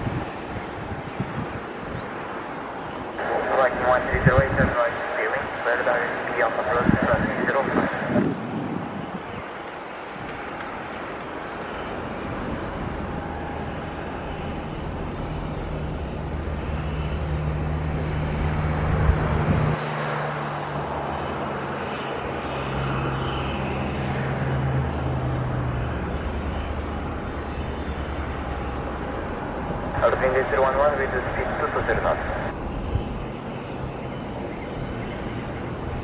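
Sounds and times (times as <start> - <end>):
distant jet engine rumble: 0.0 - 36.0.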